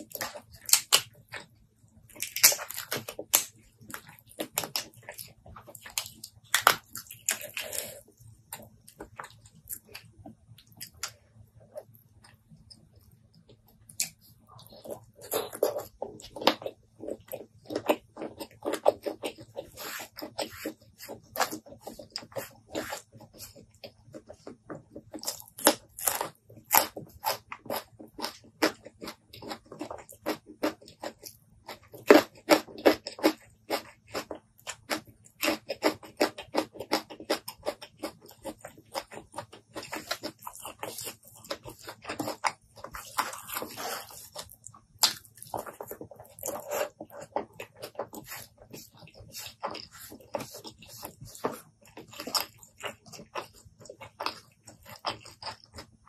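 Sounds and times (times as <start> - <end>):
faint low hum: 0.0 - 56.0
wet chewing and lip-smacking: 0.0 - 56.0.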